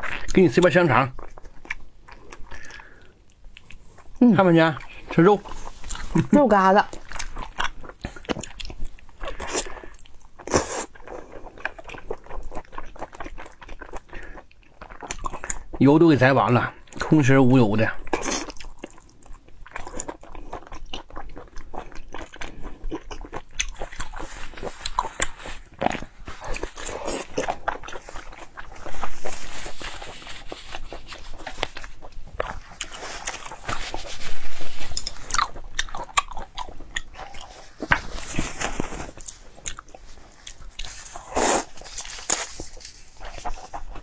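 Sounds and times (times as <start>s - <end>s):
chewing with wet smacks: 0.0s - 15.8s, 18.0s - 29.8s, 30.4s - 34.0s, 34.8s - 38.0s, 39.1s - 44.0s
slurping noodles: 40.5s - 44.0s.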